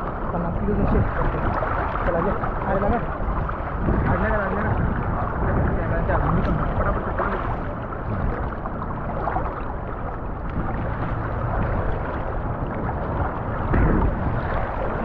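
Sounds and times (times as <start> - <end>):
sea water sloshing around waders: 0.0 - 15.0.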